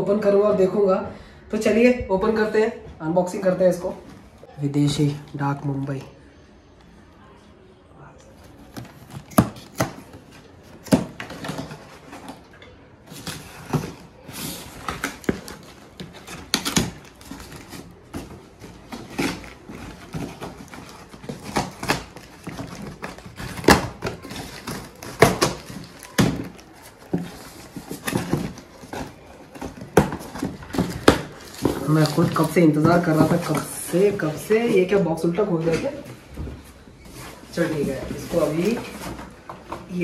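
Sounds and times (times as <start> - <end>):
cardboard rustling: 8.3 - 40.0.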